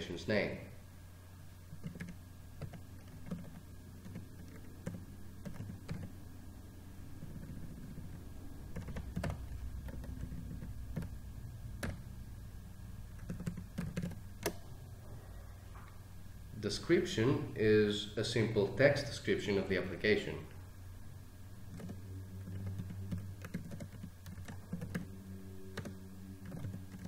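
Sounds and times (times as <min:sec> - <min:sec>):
faint low hum: 0:00.0 - 0:27.0
computer keyboard typing: 0:01.8 - 0:06.2, 0:07.2 - 0:12.1, 0:13.1 - 0:14.6, 0:21.7 - 0:27.0.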